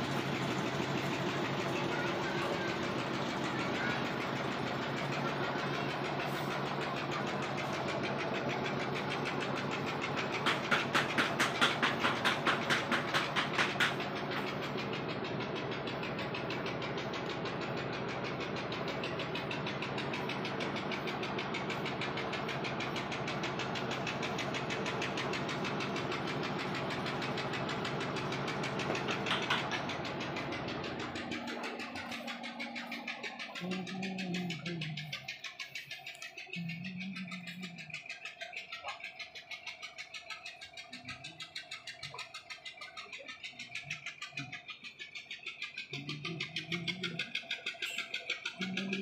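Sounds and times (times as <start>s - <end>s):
machine motor droning: 0.0s - 49.0s
rapid even knocking: 0.0s - 49.0s.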